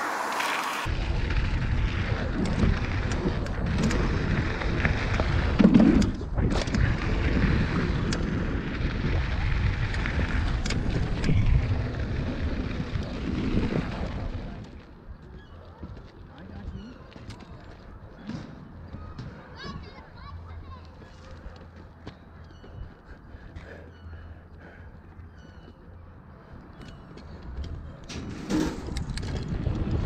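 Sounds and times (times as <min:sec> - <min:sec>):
bike tyres rolling over dirt: 0:00.1 - 0:19.4, 0:25.6 - 0:30.0
wind rumbling on microphone: 0:00.3 - 0:18.2, 0:22.4 - 0:30.0
bike clicks and knocks: 0:02.4 - 0:07.0, 0:26.6 - 0:30.0.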